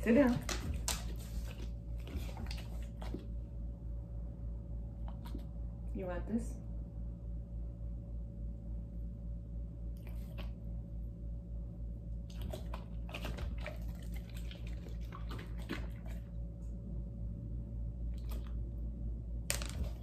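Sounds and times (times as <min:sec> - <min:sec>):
steady low hum: 0:00.0 - 0:20.0
dog licking and chewing: 0:12.3 - 0:16.4.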